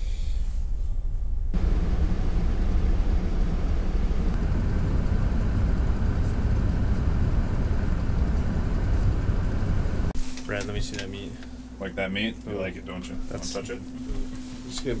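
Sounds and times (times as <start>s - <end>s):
vehicle engine rumble: 0.0s - 11.7s.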